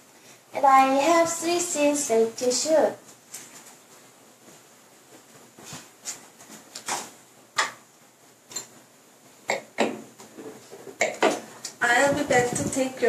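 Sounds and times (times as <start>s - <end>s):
knocks on wooden table: 9.5s - 10.1s.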